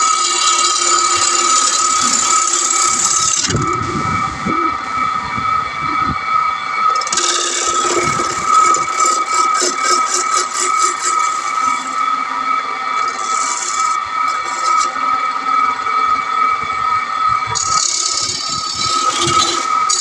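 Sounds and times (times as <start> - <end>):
wood lathe whining: 0.0 - 20.0
gouge scraping wood: 7.0 - 11.9, 13.1 - 15.0, 17.6 - 20.0.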